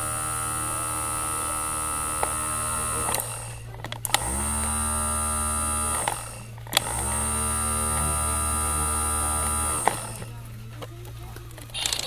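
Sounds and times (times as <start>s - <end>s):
sharp clicks: 3.0s - 4.6s.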